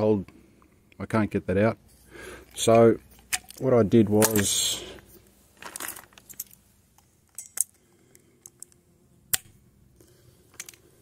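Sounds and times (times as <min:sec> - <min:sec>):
hand tools clicking and clinking: 0:02.5 - 0:04.7, 0:05.6 - 0:08.8, 0:10.5 - 0:10.9.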